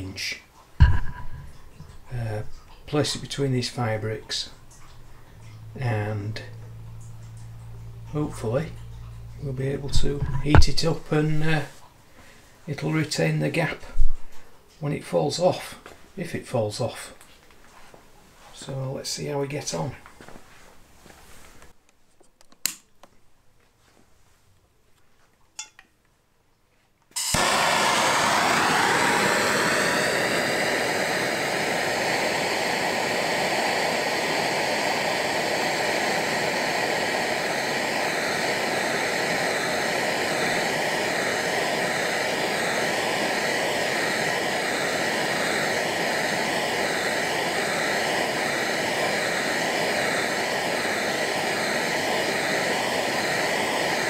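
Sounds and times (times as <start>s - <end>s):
blowtorch hissing: 0.8s - 11.7s, 27.2s - 54.0s
blowtorch lighting with whoosh: 0.8s - 11.7s, 27.2s - 54.0s.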